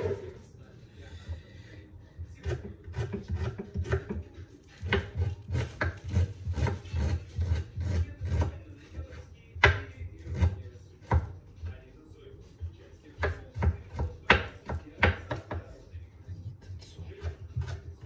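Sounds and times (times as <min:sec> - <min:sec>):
knife chopping on wooden board: 0:02.4 - 0:08.6, 0:09.6 - 0:11.4, 0:13.2 - 0:15.7, 0:17.2 - 0:18.0.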